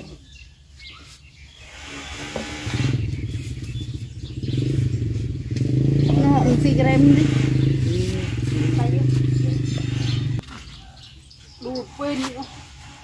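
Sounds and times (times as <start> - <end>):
small engine humming: 1.6 - 10.4.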